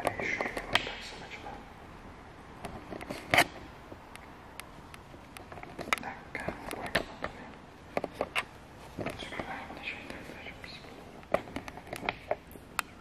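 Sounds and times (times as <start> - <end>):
faint hiss: 0.2 - 2.0.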